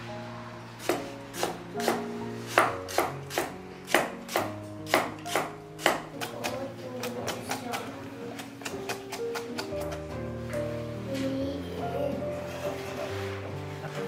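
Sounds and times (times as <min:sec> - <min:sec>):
cleaver chopping on wooden block: 0:00.8 - 0:07.8.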